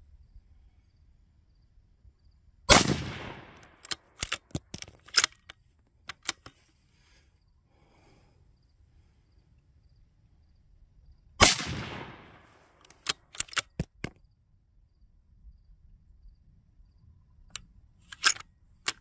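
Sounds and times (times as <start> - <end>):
rifle shot echoing: 2.7 - 3.7, 11.4 - 12.6
sharp clicks and clinks: 3.7 - 6.5, 12.8 - 14.2.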